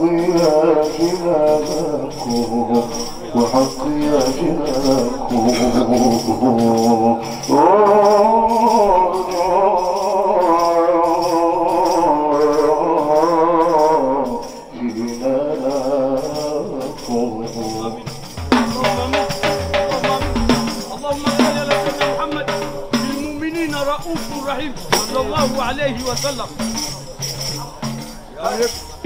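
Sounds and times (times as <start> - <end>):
man singing: 0.0 - 26.8
tambourines jingling: 0.0 - 29.0
sharp drum strikes: 18.4 - 23.1.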